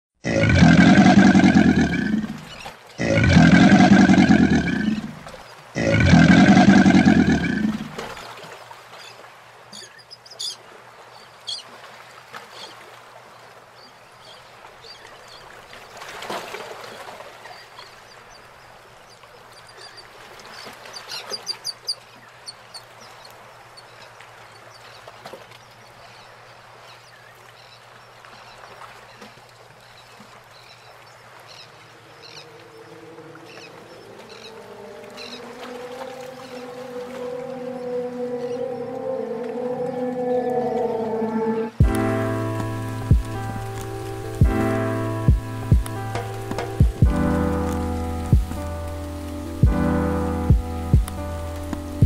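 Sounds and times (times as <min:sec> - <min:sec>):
rough animal calls: 0:00.2 - 0:08.1, 0:32.2 - 0:42.0.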